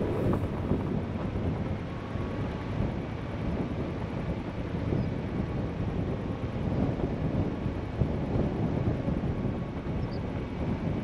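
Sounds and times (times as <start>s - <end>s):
tyres rumbling on dirt road: 0.0s - 2.0s
wind noise: 0.0s - 11.0s.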